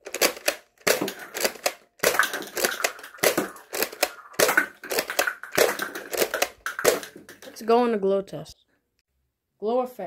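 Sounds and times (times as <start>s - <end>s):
toy blaster plastic clacks: 0.0s - 7.6s
plastic cups clattering: 0.0s - 7.8s.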